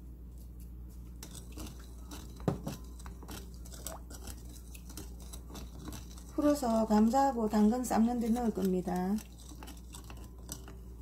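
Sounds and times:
spoon scraping glass bowl: 0:01.2 - 0:11.0.

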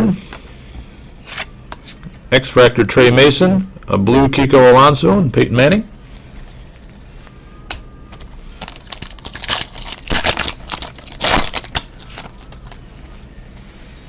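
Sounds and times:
foil wrapper crinkling and tearing: 0:08.2 - 0:13.1.

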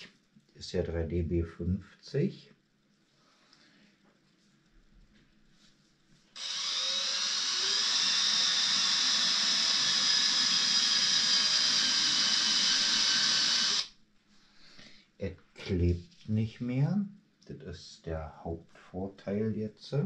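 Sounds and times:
cordless drill whining: 0:06.4 - 0:13.9.

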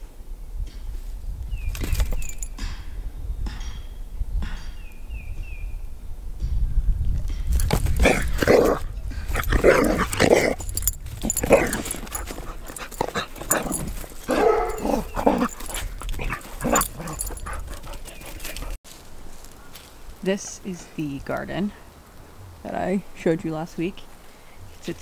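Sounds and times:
dogs barking: 0:08.0 - 0:18.8.

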